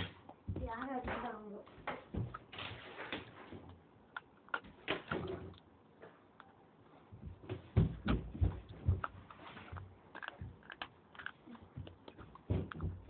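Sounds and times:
crunching and chewing: 8.6 - 13.0.

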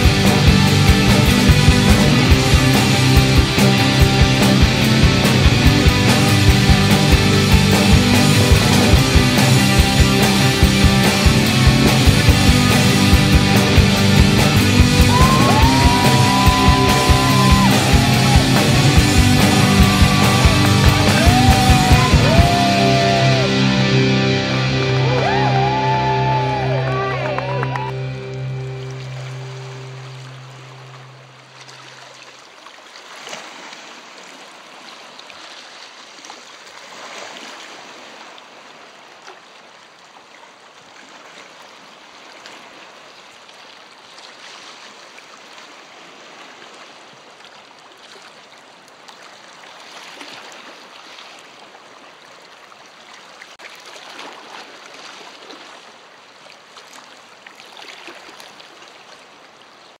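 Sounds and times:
lake water lapping on rocky shore: 27.9 - 60.0.

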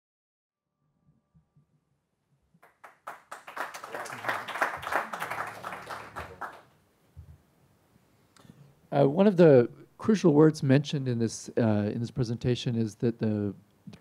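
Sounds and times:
audience applauding: 2.6 - 6.7.

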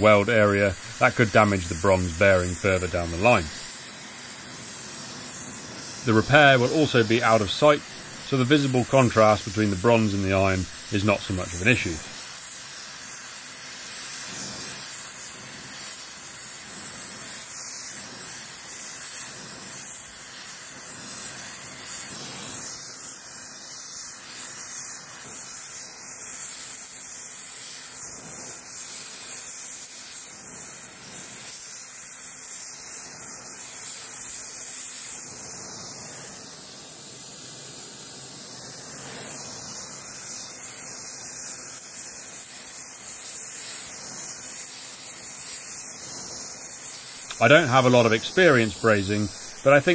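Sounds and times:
brazing torch flame hissing: 0.0 - 49.9.

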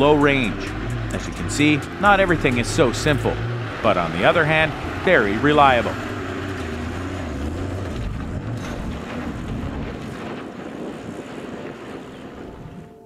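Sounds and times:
diesel engine hum: 0.0 - 13.0
tyres on dirt track: 0.0 - 13.0
wind on microphone: 7.9 - 13.0.

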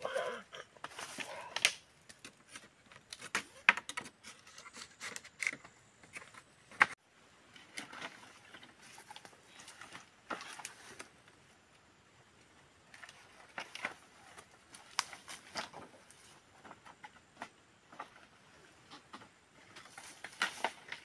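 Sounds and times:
bamboo poles knocking together: 12.9 - 21.0.

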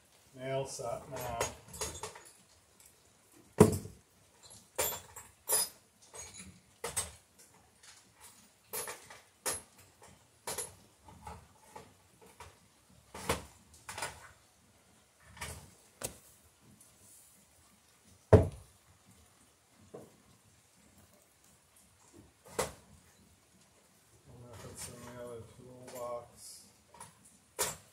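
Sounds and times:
hand tools clattering: 1.1 - 2.5.

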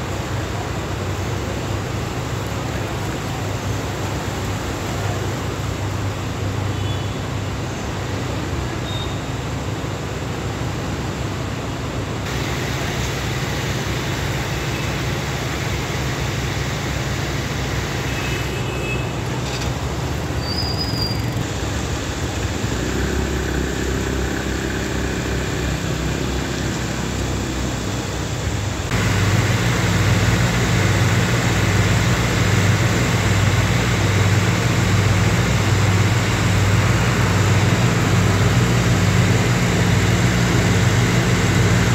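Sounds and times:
street and floodwater noise: 0.0 - 41.9
engine hum: 9.3 - 41.9
water gushing from a pipe: 12.3 - 18.5, 28.9 - 41.9.

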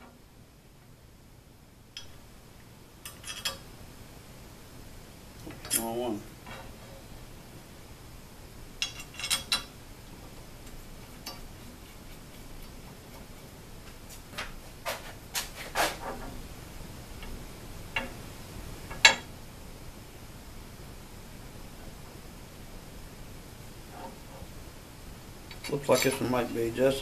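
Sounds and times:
light metal clicks and knocks: 17.2 - 18.2.

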